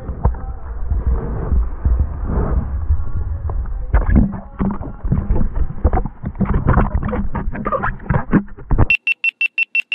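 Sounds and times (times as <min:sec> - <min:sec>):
water sloshing and rushing: 0:04.0 - 0:08.8.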